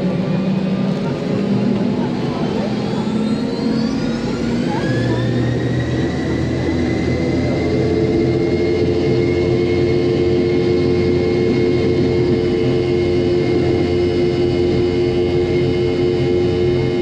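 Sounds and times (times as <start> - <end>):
jet engines at takeoff power: 0.0 - 17.0.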